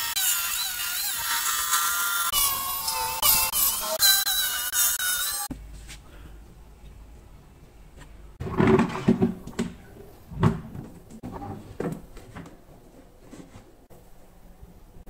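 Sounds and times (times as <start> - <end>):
cabinet panels knocking and scraping: 8.4 - 12.4.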